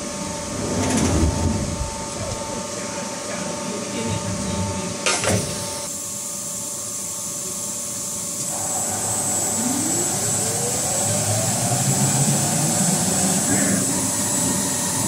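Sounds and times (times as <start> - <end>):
steady machine hum: 0.0 - 15.0
rising spindle whine: 8.4 - 15.0.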